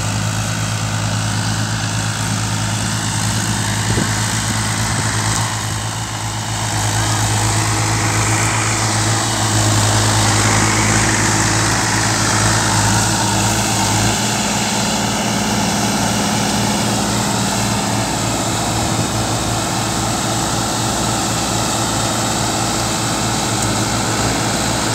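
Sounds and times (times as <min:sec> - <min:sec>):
rotavator churning: 0:00.0 - 0:24.9
tractor diesel engine drone: 0:00.0 - 0:24.9.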